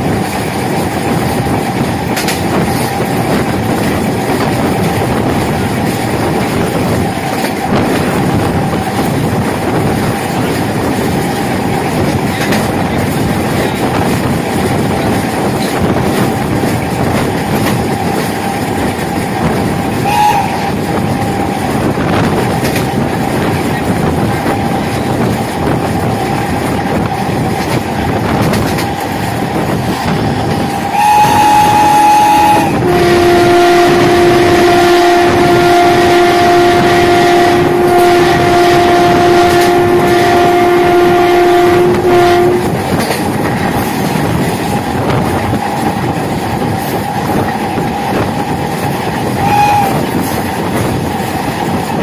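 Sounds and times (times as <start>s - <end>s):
train wheels on rails: 0.0s - 52.0s
train horn blasts: 19.9s - 21.7s, 30.6s - 43.2s, 49.3s - 50.4s.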